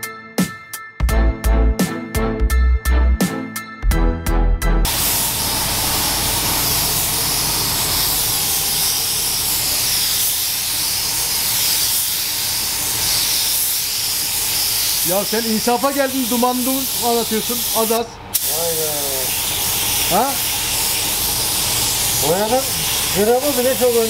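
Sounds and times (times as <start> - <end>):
background music: 0.0 - 4.9
paint spray gun hissing: 4.9 - 24.0.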